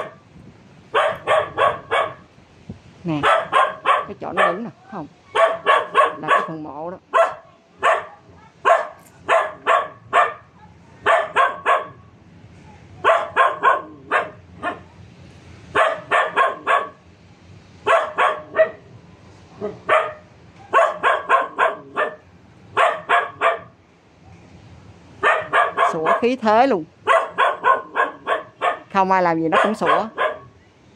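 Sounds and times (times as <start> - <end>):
dog barking: 0.9 - 2.3, 3.2 - 4.7, 5.3 - 12.0, 13.0 - 14.8, 15.7 - 17.0, 17.9 - 18.9, 19.6 - 22.2, 22.8 - 23.8, 25.2 - 26.4, 27.0 - 28.9, 29.5 - 30.6.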